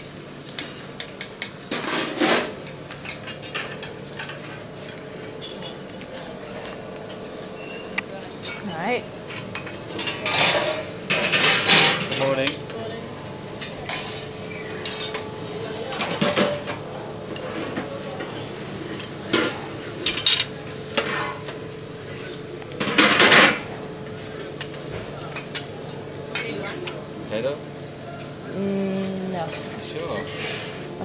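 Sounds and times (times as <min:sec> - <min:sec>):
metal lids and utensils clattering: 0:09.3 - 0:12.6, 0:15.9 - 0:16.8, 0:17.4 - 0:21.6.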